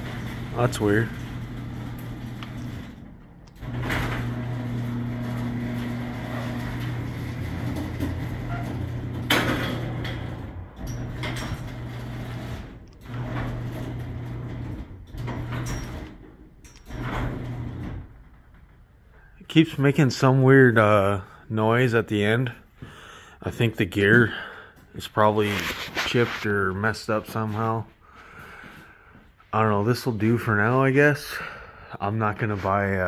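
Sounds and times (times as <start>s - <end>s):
garage door opener motor humming: 0.0s - 18.6s.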